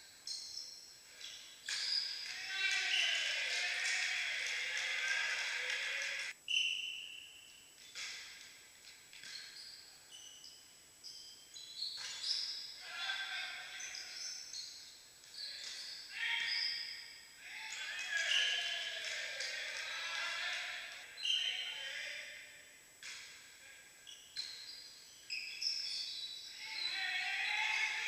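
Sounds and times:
players calling: 1.7 - 6.4, 17.4 - 22.4, 25.8 - 28.0.

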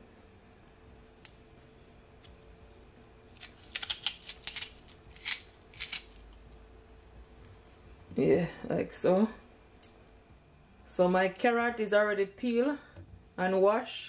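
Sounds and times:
knife cutting onion crunches: 3.3 - 6.6.

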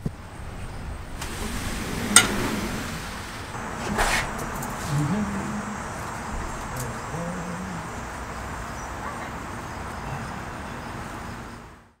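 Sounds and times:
steady background noise: 0.0 - 12.0
low voice-like sound: 4.8 - 8.2.

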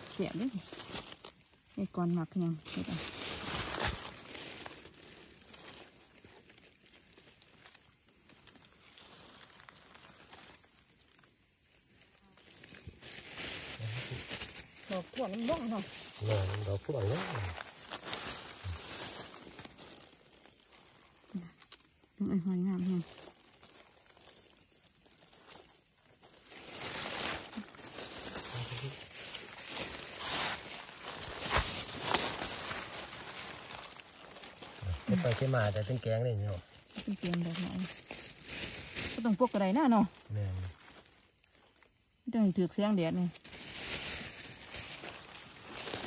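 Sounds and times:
high-pitched insect drone: 0.0 - 46.0
small ticks: 17.6 - 25.8.

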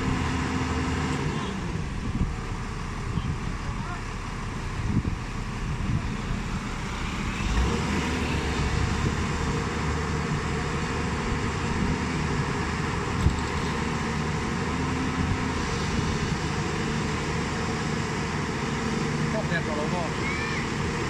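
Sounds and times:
excavator diesel engine running: 0.0 - 21.0.

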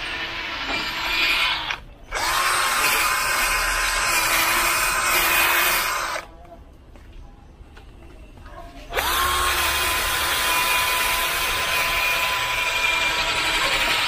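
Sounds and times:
drill motor whining: 0.0 - 6.3, 8.9 - 14.0.

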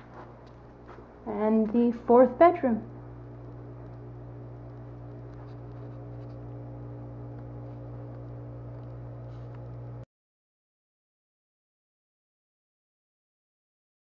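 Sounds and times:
low hum: 0.0 - 10.1.

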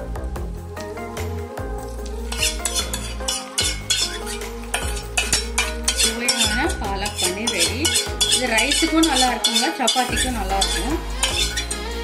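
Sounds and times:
oil sizzling: 0.4 - 12.0
spoon scraping metal pan: 2.2 - 12.0.

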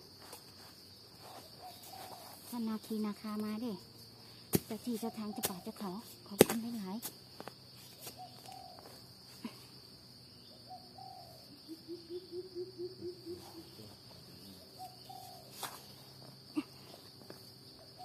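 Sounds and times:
high insect drone: 0.0 - 18.0
hand hoe digging into soil: 6.3 - 6.8.

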